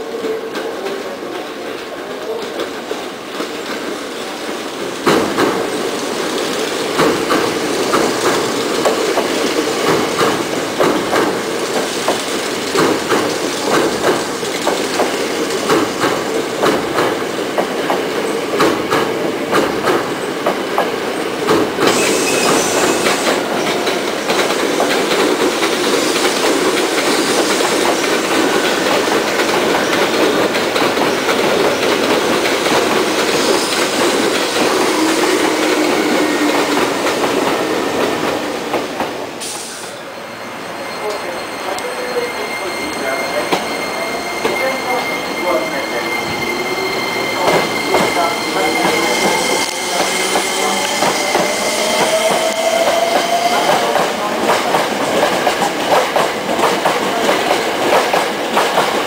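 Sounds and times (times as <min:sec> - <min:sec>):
train wheels clattering on rails: 0:00.1 - 0:39.9, 0:41.8 - 0:59.0
brief high hiss: 0:21.9 - 0:23.4, 0:39.4 - 0:40.0.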